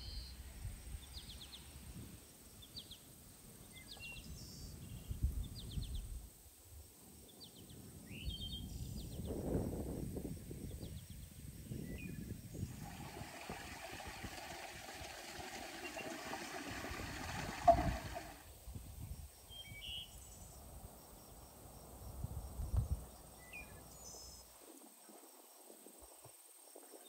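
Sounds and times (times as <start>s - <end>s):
low bumps: 12.6s - 18.5s.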